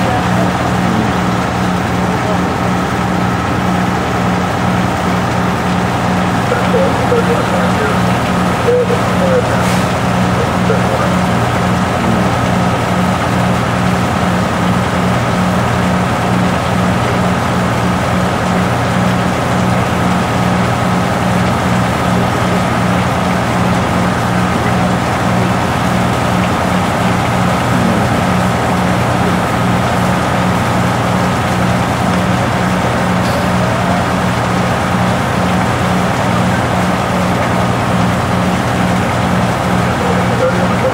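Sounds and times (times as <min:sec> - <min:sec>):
diesel engines idling: 0:00.0 - 0:40.9.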